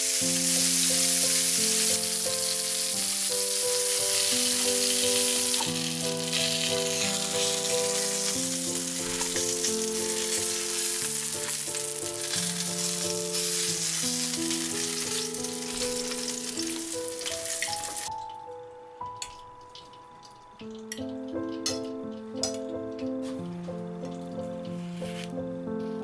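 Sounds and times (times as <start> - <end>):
fish sizzling in a pan: 0.0 - 18.2
soft background music: 0.0 - 26.0.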